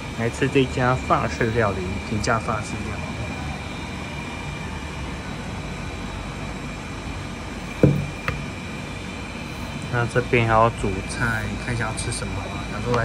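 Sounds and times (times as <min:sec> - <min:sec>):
restaurant room noise: 0:00.0 - 0:13.0
thin steady high tone: 0:00.0 - 0:13.0
short thump: 0:07.8 - 0:08.4.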